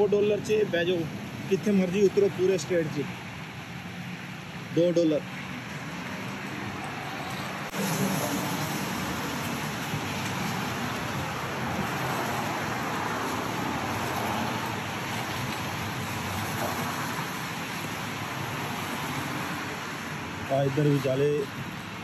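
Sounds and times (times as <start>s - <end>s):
light rain: 0.0s - 22.0s
tyres hissing on wet road: 0.0s - 22.0s
vehicle passing: 4.9s - 21.4s.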